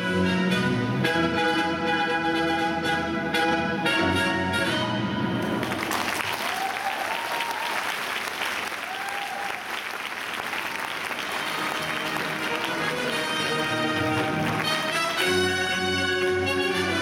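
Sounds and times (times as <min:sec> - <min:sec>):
orchestral dance music: 0:00.0 - 0:05.8, 0:11.1 - 0:17.0
audience applauding: 0:05.4 - 0:16.8.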